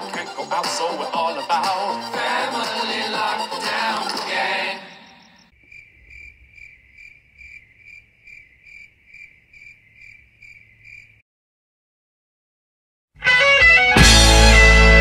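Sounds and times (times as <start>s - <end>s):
cricket chirping: 2.0s - 11.2s.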